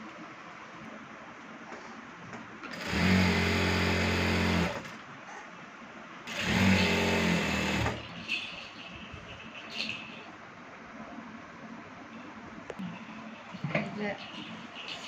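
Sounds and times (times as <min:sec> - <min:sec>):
sewing machine stitching: 0:02.7 - 0:04.9, 0:06.3 - 0:08.1.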